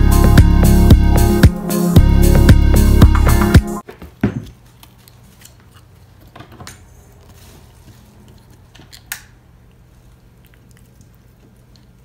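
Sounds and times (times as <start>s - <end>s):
dog gnawing chew treat: 7.0s - 12.0s.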